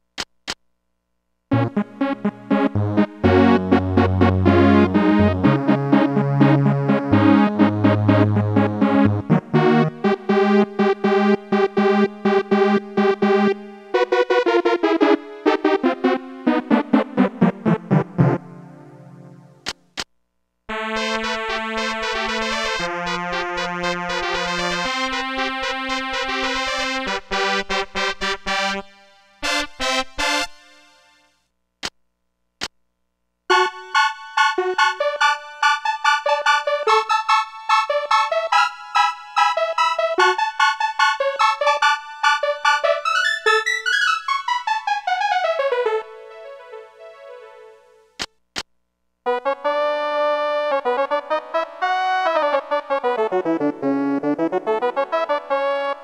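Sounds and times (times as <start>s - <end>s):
short clicks: 0.1s - 0.7s, 19.6s - 20.1s, 31.8s - 32.0s, 48.2s - 48.7s
electronic keyboard notes: 1.5s - 19.6s, 20.7s - 31.2s, 33.5s - 47.8s, 49.3s - 56.0s.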